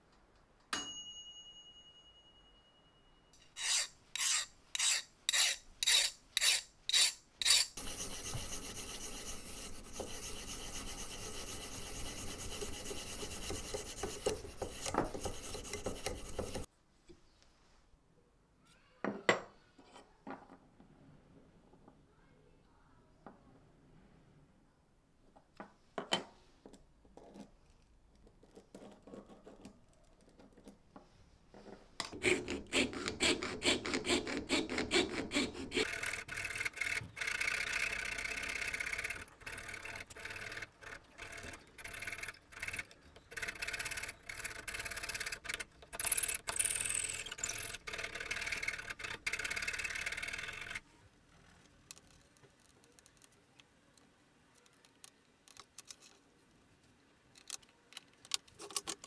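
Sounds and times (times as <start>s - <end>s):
saw rasping through wood: 3.6s - 16.7s, 32.1s - 45.6s.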